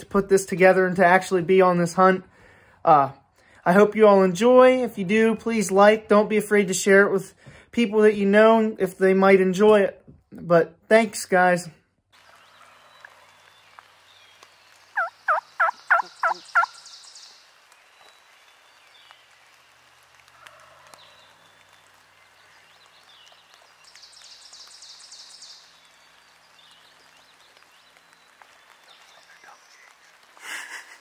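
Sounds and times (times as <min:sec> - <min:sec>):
turkey gobbling: 0:15.0 - 0:16.8.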